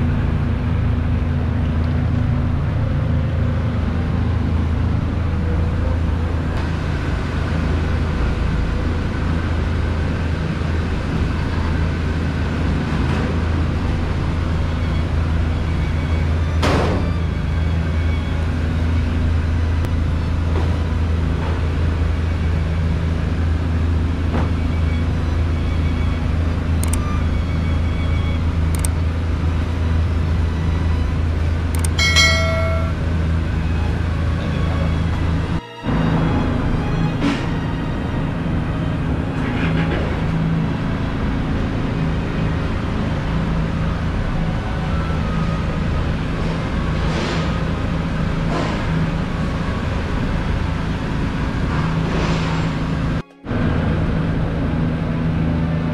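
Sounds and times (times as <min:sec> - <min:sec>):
short ringing chime: 0:32.0 - 0:33.2.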